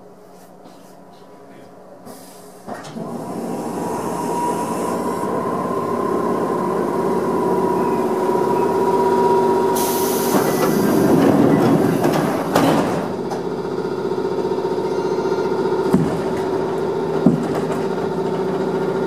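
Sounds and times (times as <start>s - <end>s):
train mechanical hum: 0.0s - 19.0s
hiss: 2.1s - 2.7s, 9.7s - 11.2s.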